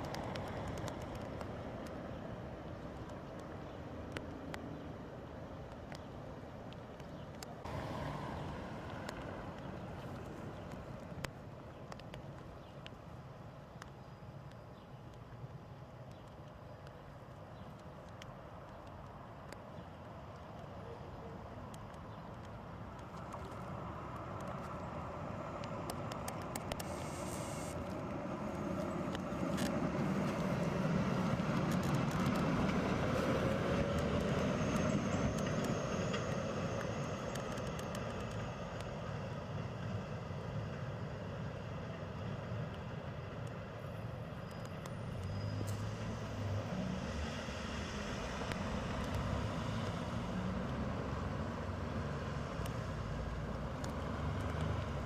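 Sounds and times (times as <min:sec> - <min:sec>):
car tyres hissing on wet road: 0:07.7 - 0:09.4, 0:26.8 - 0:28.6
tram running on rails: 0:23.6 - 0:47.2.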